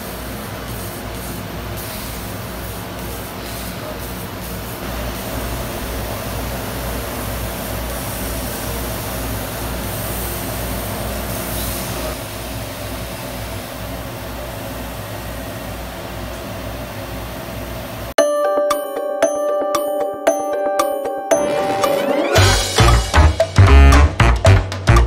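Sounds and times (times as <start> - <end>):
laser cutter hum and hiss: 0.0 - 18.1.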